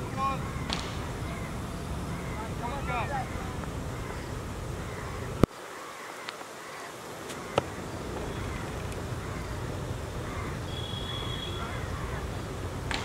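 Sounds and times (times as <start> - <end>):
outdoor ambience: 0.0 - 13.0
cricket ball striking bat: 0.6 - 1.3
faint bird chirps: 10.2 - 12.4.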